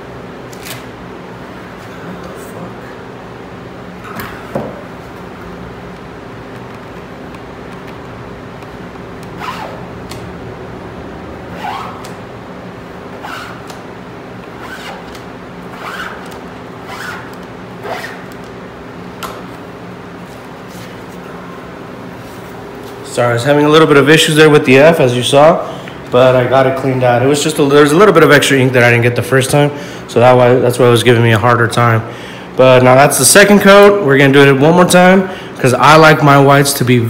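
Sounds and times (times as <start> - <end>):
steady low hum: 0.0 - 37.0
squeegee scraping a mesh screen: 15.7 - 18.2.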